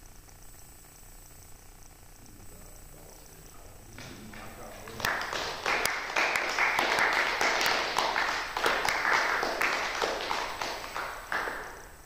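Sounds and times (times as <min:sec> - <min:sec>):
audience clapping: 0:03.9 - 0:12.0.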